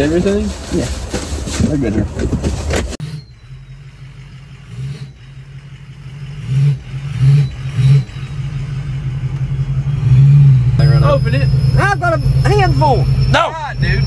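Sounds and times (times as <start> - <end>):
truck engine revving: 2.9 - 14.0.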